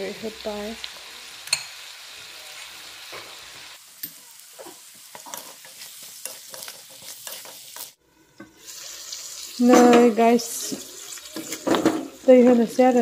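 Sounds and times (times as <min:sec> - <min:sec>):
food sizzling in a pan: 0:00.0 - 0:13.0
spatula stirring and scraping: 0:04.6 - 0:12.9.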